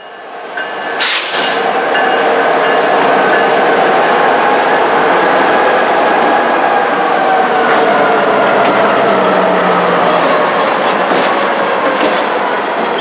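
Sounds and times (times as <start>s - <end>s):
freight train wheels clattering: 5.4s - 13.0s.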